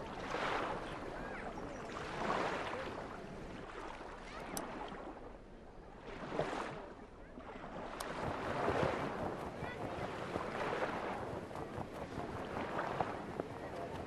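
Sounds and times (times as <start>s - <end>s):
water sloshing: 6.0s - 14.0s.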